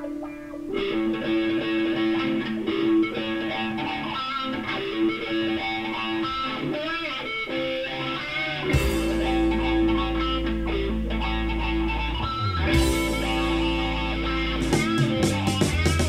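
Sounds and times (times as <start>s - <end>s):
music through speaker: 0.0s - 16.0s
sharp hit: 8.8s - 10.8s
deep steady bass: 8.8s - 16.0s.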